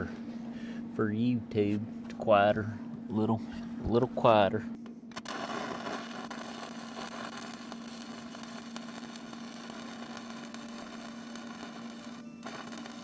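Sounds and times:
low hum: 0:00.0 - 0:13.0
welding arc crackling hiss: 0:05.1 - 0:13.0.

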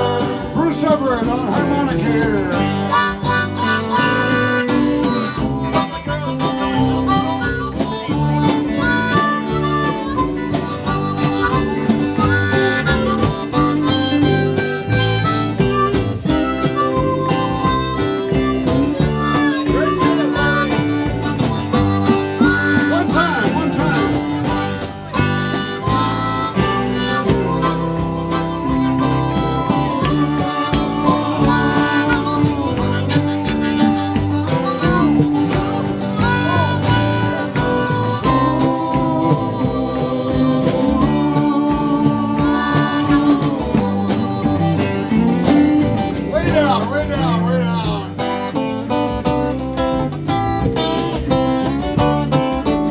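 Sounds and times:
bass guitar: 0:00.0 - 0:52.9
electric guitar: 0:00.0 - 0:52.9
harmonica solo with bending notes: 0:00.0 - 0:52.9
strummed acoustic guitar: 0:00.0 - 0:52.9.

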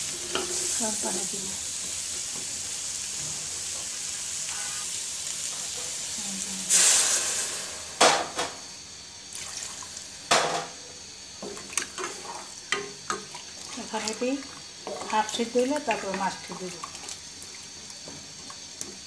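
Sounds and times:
water poured into hot pan hissing: 0:00.0 - 0:10.4, 0:11.1 - 0:18.9
vegetables sizzling in oil: 0:00.0 - 0:19.0
knocks against a pot: 0:10.3 - 0:10.8.

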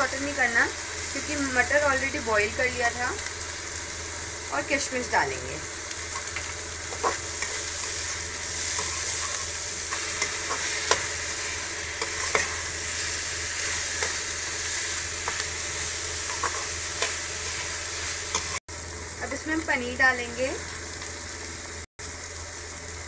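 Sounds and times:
vegetables sizzling in oil: 0:00.0 - 0:23.0
spatula scraping metal pan: 0:12.0 - 0:12.6.

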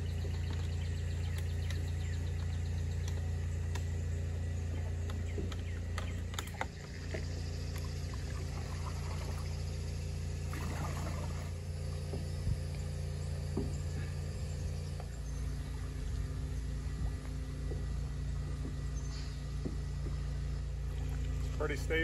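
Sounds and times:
steady low hum: 0:00.0 - 0:22.0
water sloshing and splashing: 0:04.6 - 0:14.1, 0:19.6 - 0:21.8.

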